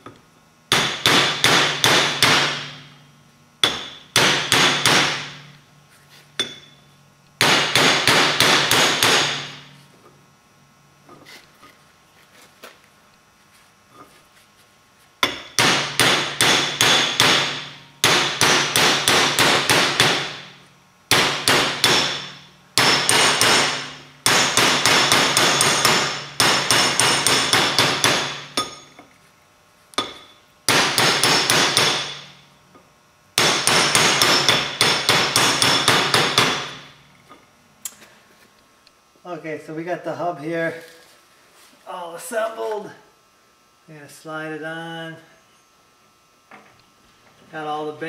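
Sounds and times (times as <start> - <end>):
hammer ringing on steel pipe: 24.3 - 28.9.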